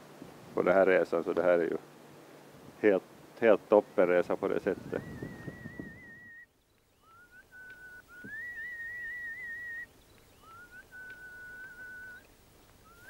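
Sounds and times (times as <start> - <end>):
person whistling a slow tune: 4.9 - 12.2.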